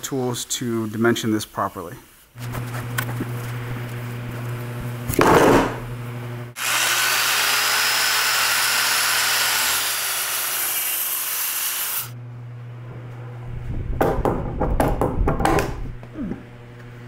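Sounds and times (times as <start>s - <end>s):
wood slab thud on workbench: 5.1s - 5.8s
circular saw cutting wood: 6.5s - 12.2s.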